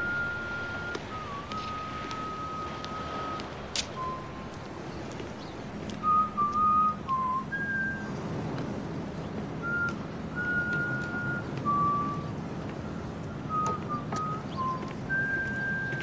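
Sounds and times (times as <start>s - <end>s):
person whistling a slow tune: 0.0s - 4.6s, 6.0s - 8.2s, 9.6s - 16.0s
low steady hum: 0.0s - 16.0s.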